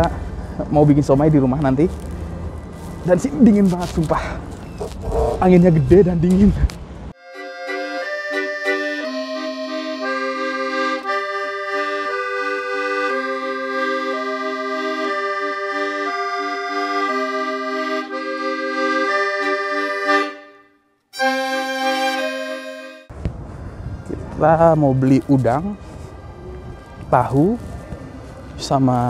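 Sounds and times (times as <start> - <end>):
accordion music: 7.1 - 23.1.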